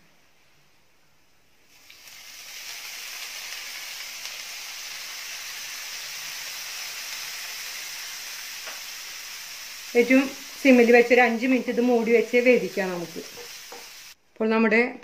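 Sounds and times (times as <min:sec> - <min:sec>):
water sizzling on hot pan: 0:01.7 - 0:14.2.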